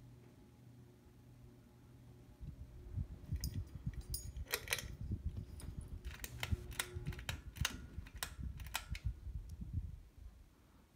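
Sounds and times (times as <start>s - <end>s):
low rumble of handling: 2.3s - 10.5s.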